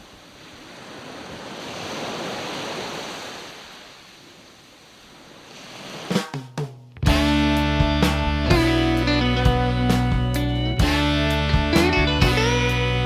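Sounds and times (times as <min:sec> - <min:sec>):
music: 0:06.1 - 0:13.0.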